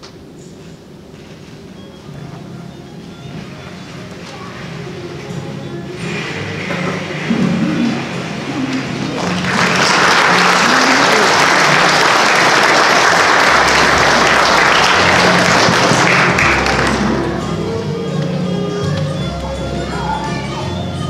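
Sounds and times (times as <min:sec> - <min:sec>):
quiet background music: 0:00.3 - 0:10.2, 0:13.2 - 0:21.0
audience applauding: 0:06.6 - 0:17.5.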